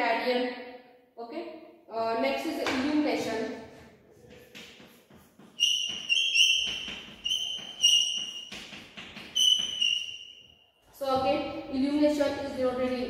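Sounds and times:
chalk scratching on blackboard: 3.7s - 10.2s
chalk squeals: 4.2s - 10.6s.

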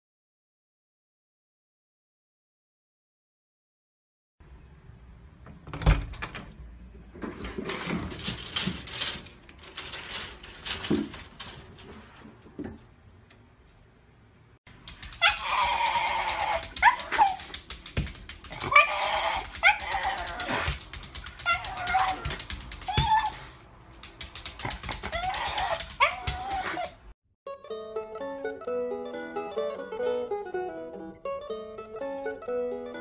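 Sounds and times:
clicking and rattling: 7.2s - 12.7s, 14.7s - 26.9s
dog high wavering calls: 15.1s - 17.5s, 18.6s - 20.7s, 21.3s - 23.6s, 24.9s - 27.0s.

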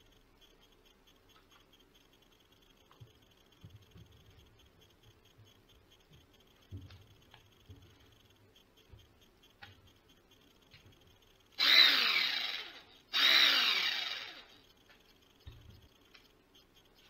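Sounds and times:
jigsaw motor whine and blade clatter: 11.6s - 14.6s.

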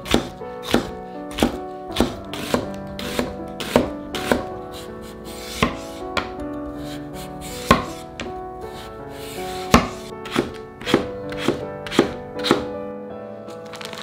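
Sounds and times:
knife chopping on wooden board: 0.0s - 4.5s, 5.4s - 6.4s, 7.5s - 8.0s, 9.2s - 12.7s.

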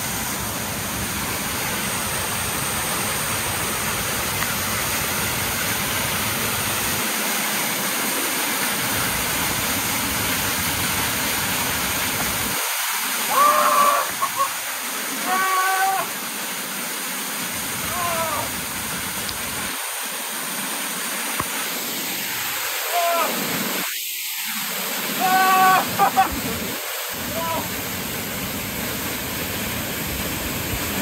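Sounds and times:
waterfall roaring: 0.0s - 31.0s
person calling out: 13.3s - 16.2s, 17.8s - 18.6s, 22.8s - 23.4s, 25.2s - 26.6s, 27.2s - 27.8s.

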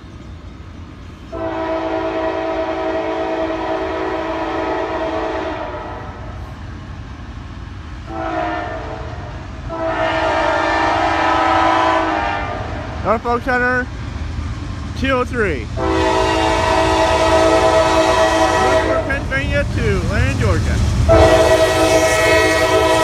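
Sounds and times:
low train rumble: 0.0s - 23.0s
locomotive air horn blasts: 1.3s - 6.2s, 8.1s - 12.8s, 15.8s - 19.2s, 21.1s - 23.0s.

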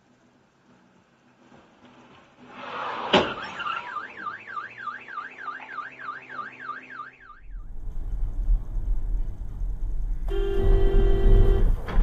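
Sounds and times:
car alarm siren warbling: 3.4s - 7.7s.

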